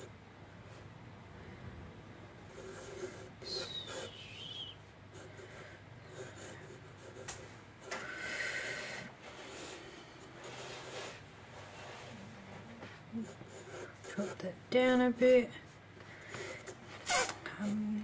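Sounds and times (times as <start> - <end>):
pencil scratching on paper: 2.5 - 4.2, 5.1 - 8.0, 9.2 - 15.4.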